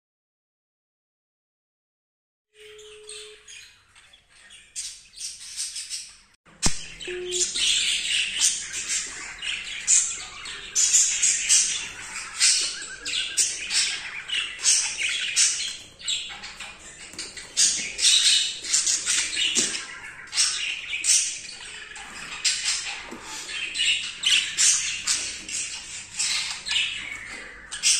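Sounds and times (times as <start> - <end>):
budgerigars chattering: 6.8 - 27.9.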